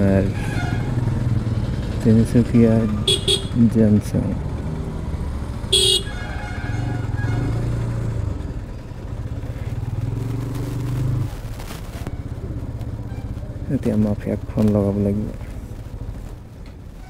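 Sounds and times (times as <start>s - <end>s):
motorcycle engine running: 0.0s - 16.8s
horn toot: 2.9s - 3.6s, 5.7s - 7.8s.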